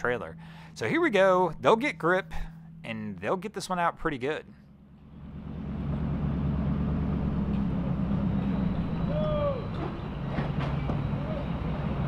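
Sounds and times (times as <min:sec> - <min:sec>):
truck engine under load: 0:04.5 - 0:12.0
man shouting: 0:09.1 - 0:09.7.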